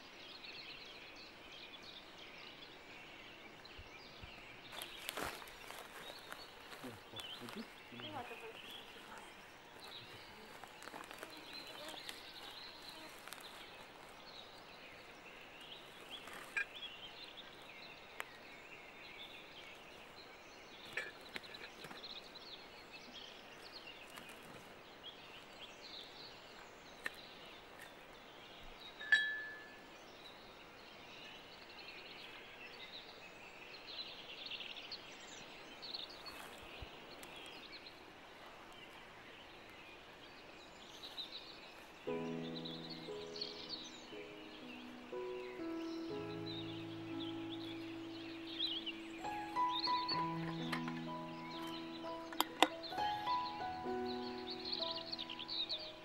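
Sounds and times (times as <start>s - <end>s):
bird chirps: 0.0s - 24.4s, 40.9s - 56.0s
sharp ringing clink: 29.0s - 29.8s.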